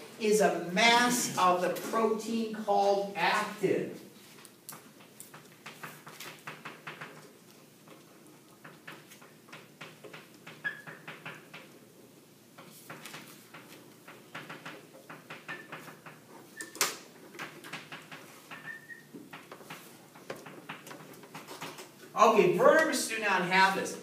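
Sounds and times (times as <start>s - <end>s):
chalk tapping on a blackboard: 17.4s - 21.6s
chalk squeaks: 18.5s - 19.1s.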